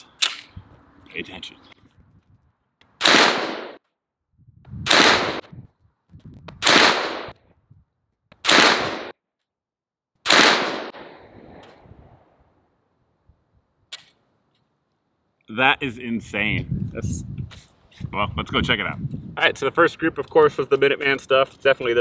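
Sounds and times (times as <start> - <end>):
pistol shots: 3.0 - 3.8, 4.9 - 5.4, 6.6 - 7.4, 8.4 - 9.2, 10.2 - 11.2.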